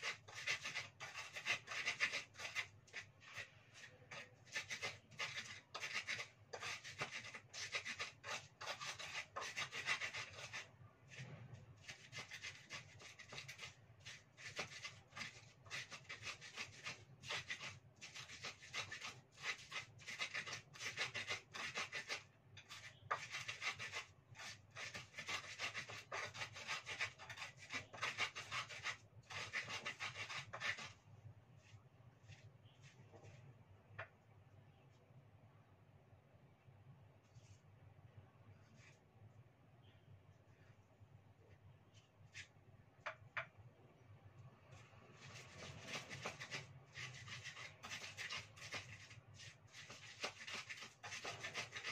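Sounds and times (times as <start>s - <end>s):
pestle grinding in mortar: 0.0s - 10.6s, 11.8s - 31.0s, 45.2s - 51.9s.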